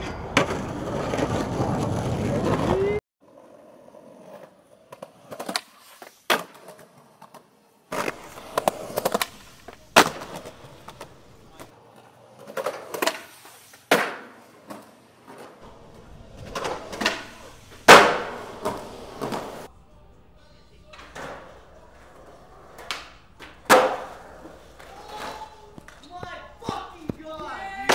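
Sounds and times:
skateboard clacks and slaps: 0.0s - 3.0s, 4.2s - 19.7s, 20.9s - 27.9s
skateboard wheels rolling on concrete: 0.0s - 19.7s, 20.9s - 27.9s.

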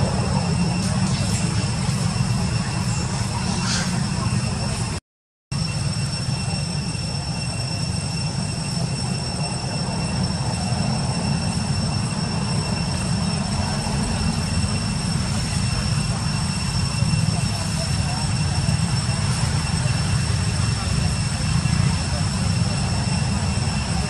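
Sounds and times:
outdoor background rumble: 0.0s - 5.0s
high-pitched whine: 0.0s - 24.0s.

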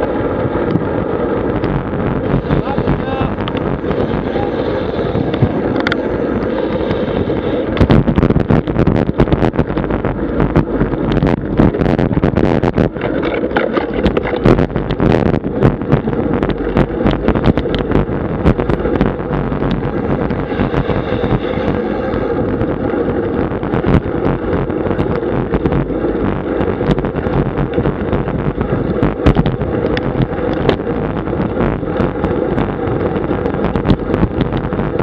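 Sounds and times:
road and tyre rumble: 0.0s - 35.0s
wind buffeting microphone: 0.0s - 35.0s
sharp clicks and knocks: 7.7s - 21.4s, 28.8s - 35.0s.

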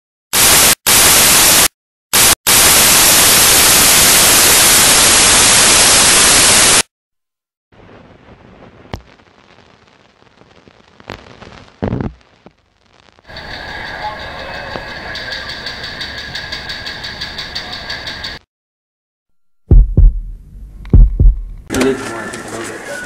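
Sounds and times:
loud white-noise static: 0.4s - 6.8s.

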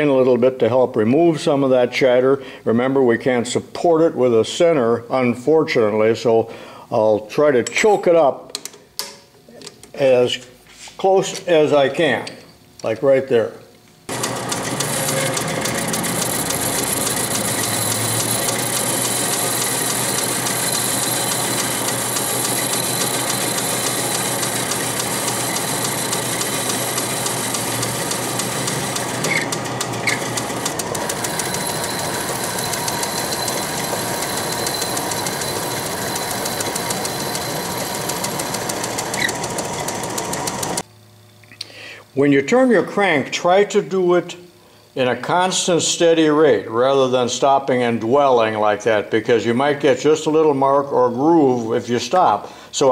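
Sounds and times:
lathe cutting metal: 14.1s - 40.8s.

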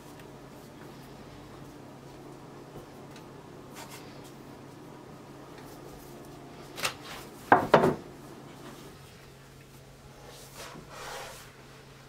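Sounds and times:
faint steady hum: 0.0s - 12.0s
loud knocks of tray on counter: 7.5s - 8.0s.

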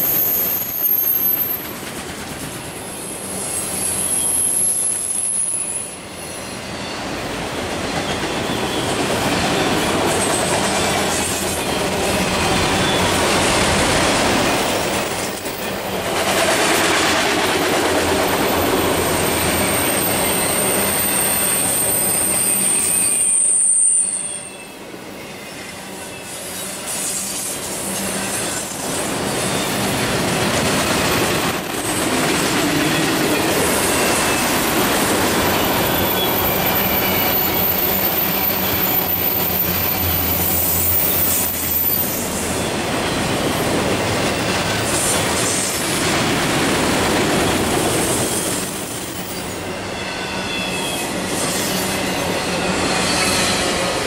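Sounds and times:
train wheels clattering on rail: 0.0s - 5.6s, 6.2s - 23.4s, 26.4s - 54.0s
wheel squeal: 3.5s - 7.0s, 19.1s - 28.7s, 32.9s - 42.3s, 49.2s - 53.6s.

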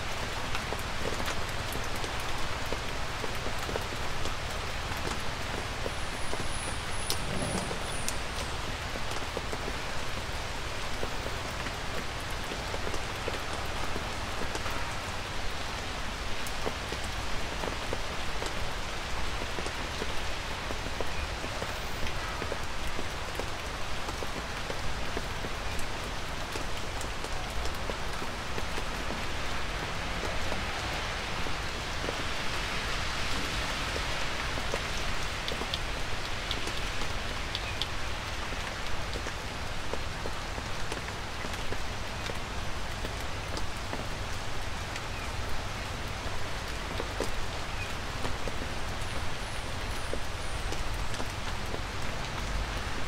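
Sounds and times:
light rain falling: 0.0s - 53.0s.

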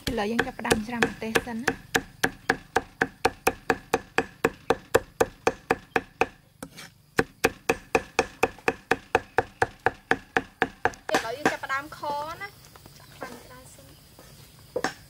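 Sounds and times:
cleaver chopping on wooden block: 0.0s - 11.6s.

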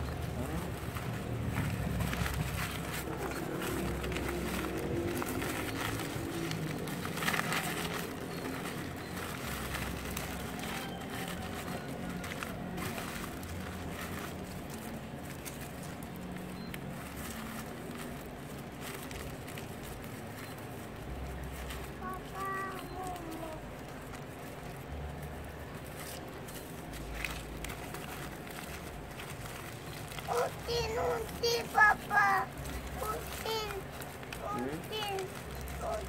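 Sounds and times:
sack rustling and crinkling: 0.0s - 36.0s.

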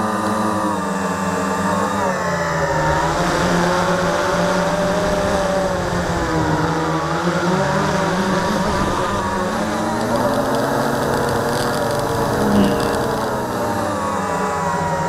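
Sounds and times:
drone motors buzzing whine: 0.0s - 15.0s.

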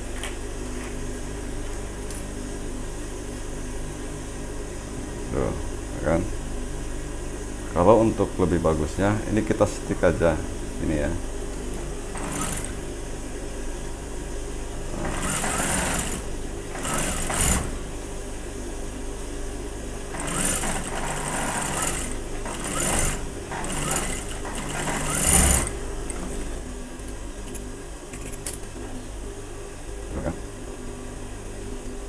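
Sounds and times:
sewing machine motor humming: 11.7s - 12.9s, 14.9s - 17.9s, 20.1s - 26.7s
sewing machine stitching: 12.1s - 12.8s, 14.9s - 17.8s, 20.1s - 26.5s.

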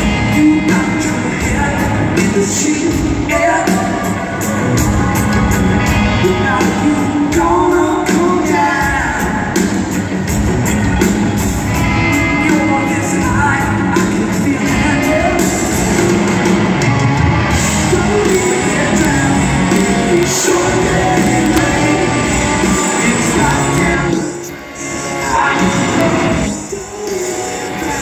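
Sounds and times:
person singing: 0.0s - 9.9s, 17.5s - 28.0s
drums: 0.0s - 28.0s
electric guitars: 0.0s - 28.0s.

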